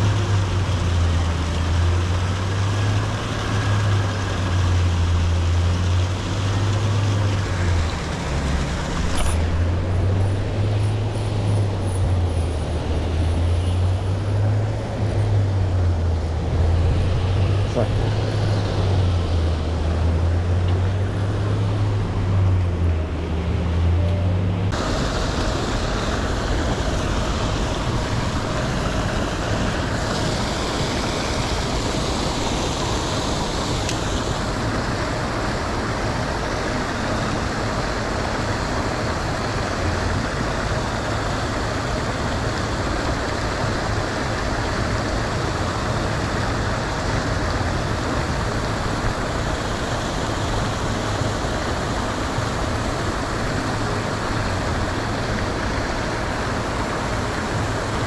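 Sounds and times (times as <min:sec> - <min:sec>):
churning pond water: 0:00.0 - 0:58.0.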